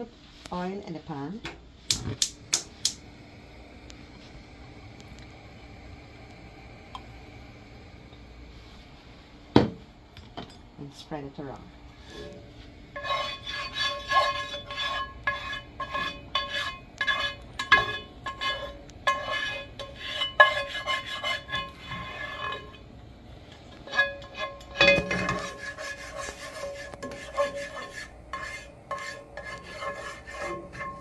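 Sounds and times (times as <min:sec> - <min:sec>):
spatula scraping in a ringing pan: 0:12.0 - 0:22.9, 0:23.5 - 0:31.0.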